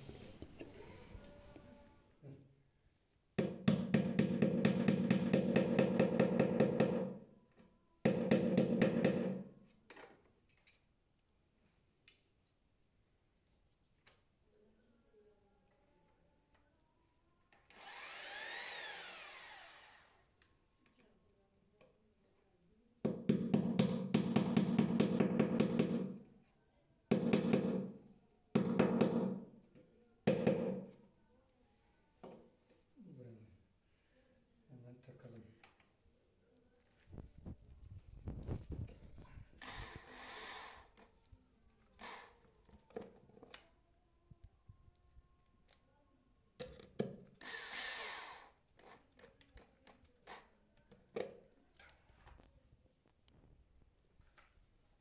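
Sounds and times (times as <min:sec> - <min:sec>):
power drill rattling: 0:17.7 - 0:20.0.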